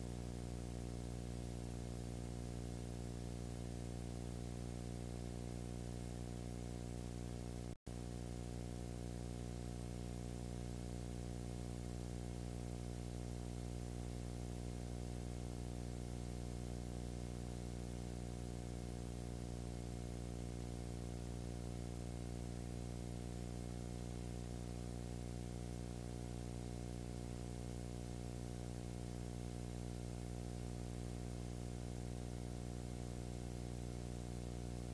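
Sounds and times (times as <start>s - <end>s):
low electrical hum: 0.0s - 34.9s.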